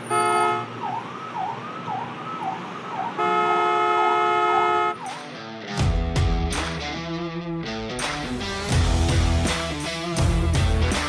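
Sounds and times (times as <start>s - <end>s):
car horn honking: 0.0s - 0.8s, 3.2s - 5.1s
road traffic noise: 0.0s - 11.0s
siren wailing: 0.6s - 3.5s.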